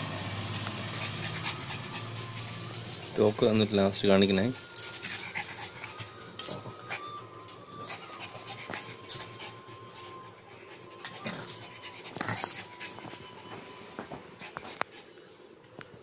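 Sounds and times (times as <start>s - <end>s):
small dog sounds: 0.7s - 3.4s.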